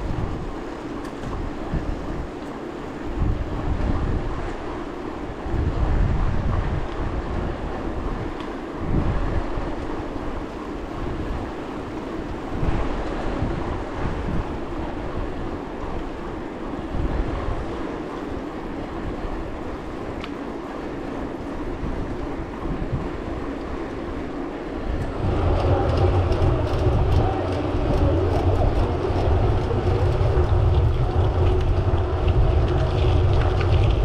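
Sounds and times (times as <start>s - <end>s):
wind buffeting microphone: 0.0s - 34.0s
tyres rumbling on gravel: 25.1s - 34.0s.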